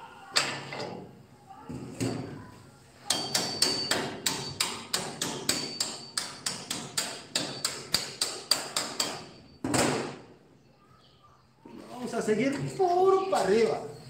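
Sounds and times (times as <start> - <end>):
hammer striking steel bar: 3.0 - 9.4.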